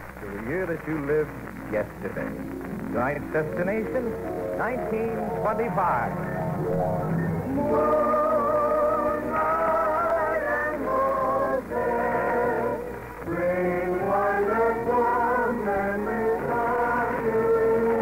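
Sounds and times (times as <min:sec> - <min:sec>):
muffled orchestral music on radio: 0:00.0 - 0:18.0.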